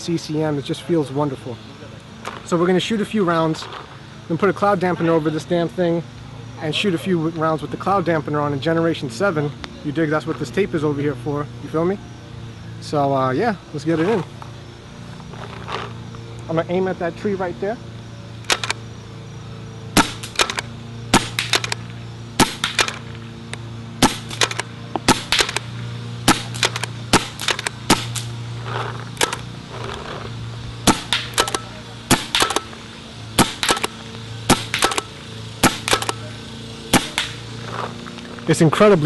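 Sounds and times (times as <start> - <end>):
steady low hum: 0.0 - 39.0
paintball marker shots popping: 20.0 - 30.1, 30.8 - 32.8, 33.4 - 36.3, 36.9 - 37.9.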